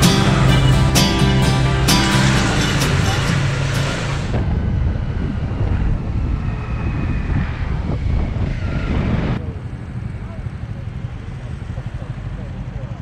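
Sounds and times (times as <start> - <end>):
vehicle rumble: 0.0 - 13.0
wind buffeting microphone: 2.4 - 10.7.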